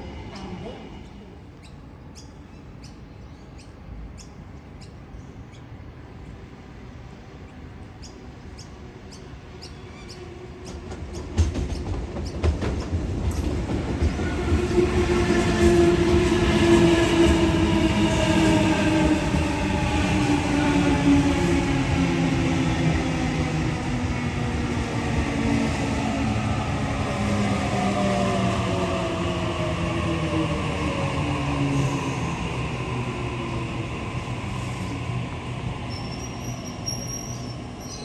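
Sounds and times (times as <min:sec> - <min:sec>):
train rumble: 0:05.9 - 0:38.0
train wheels clicking on track: 0:09.6 - 0:22.0.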